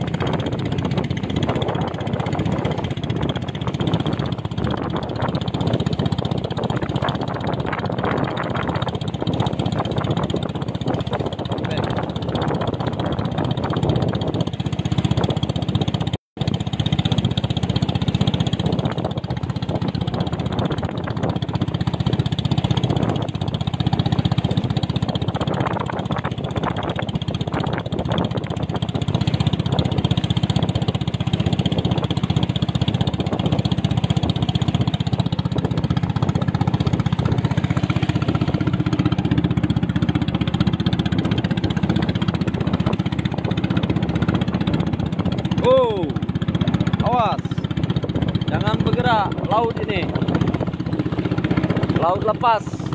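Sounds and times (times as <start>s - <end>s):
boat engine running: 0.0s - 52.9s
water rushing along hull: 0.0s - 52.9s.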